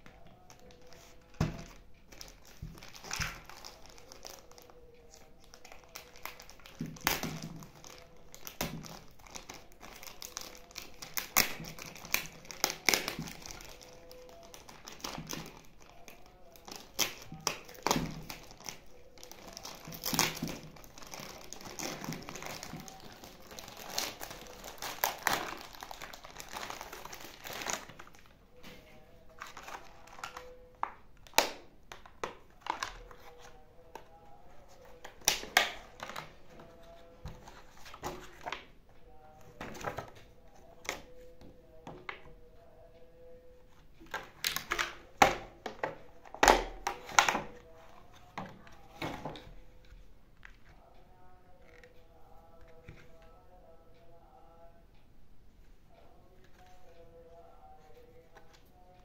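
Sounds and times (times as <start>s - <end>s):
plastic bag crinkling: 0.5s - 28.3s.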